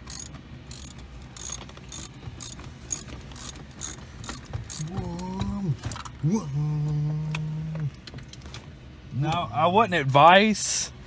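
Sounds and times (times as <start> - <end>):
ratchet wrench clicking: 0.0 - 4.9.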